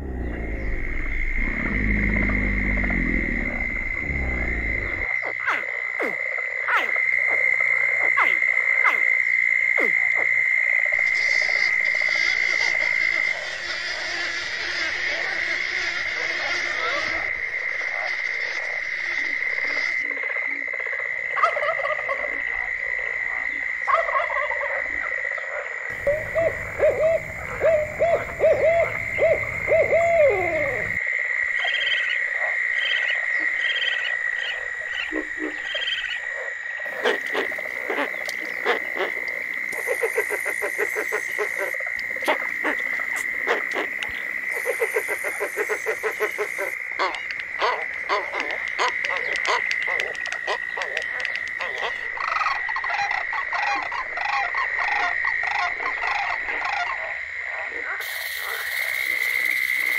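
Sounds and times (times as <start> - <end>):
frogs clicking and croaking: 0.0 - 59.9
high-pitched frog chorus: 0.0 - 59.9
owl hooting: 25.9 - 31.0, 36.9 - 51.9.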